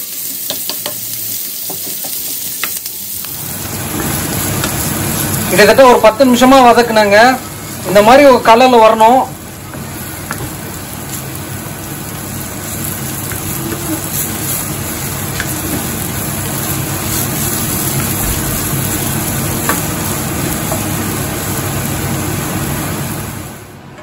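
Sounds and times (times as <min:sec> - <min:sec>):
onions sizzling in a frying pan: 0:00.0 - 0:23.7
wooden spatula tapping a pan: 0:00.3 - 0:02.8, 0:09.7 - 0:10.6, 0:15.3 - 0:15.9.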